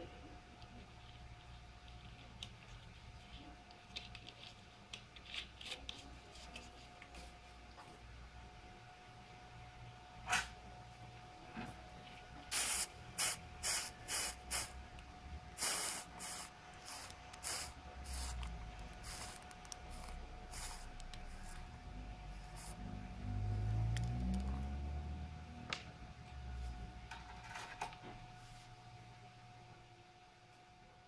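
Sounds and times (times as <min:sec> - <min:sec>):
soldering iron sizzling on sponge: 0:15.6 - 0:21.8.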